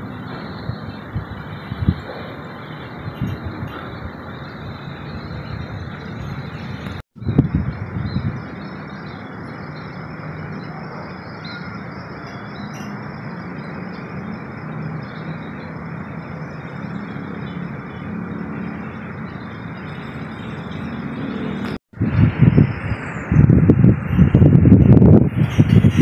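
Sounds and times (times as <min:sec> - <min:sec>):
rushing outdoor noise: 0:00.0 - 0:26.0
wind buffeting microphone: 0:00.0 - 0:26.0
faint bird chirps: 0:05.2 - 0:18.0.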